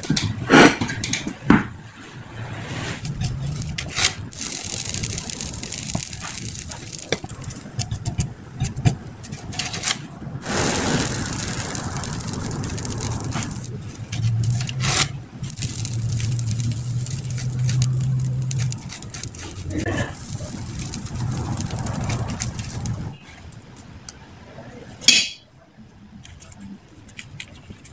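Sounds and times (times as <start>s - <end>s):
brush scraping on griddle: 2.0s - 23.5s.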